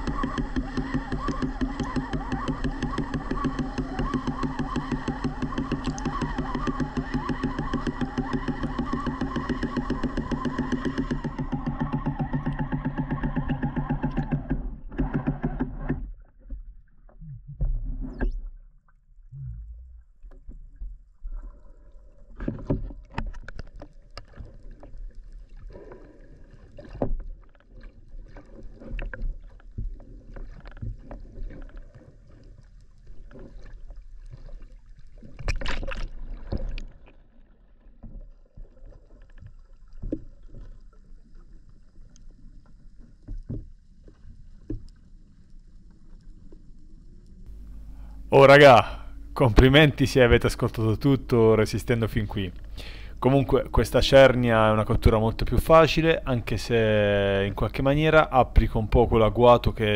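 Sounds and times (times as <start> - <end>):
water rushing: 0.0 - 12.6, 47.5 - 59.9
knocks and clicks: 0.0 - 16.0
muffled underwater rumble: 16.1 - 35.5, 39.8 - 59.9.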